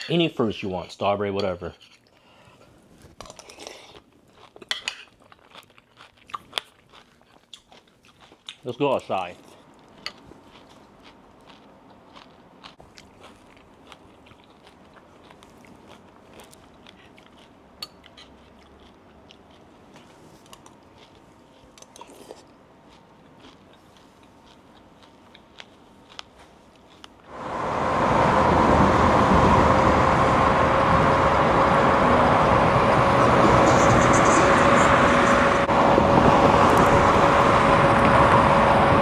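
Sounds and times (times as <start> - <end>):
electric bike motor whine: 27.3 - 39.0
wind and road noise: 27.3 - 39.0.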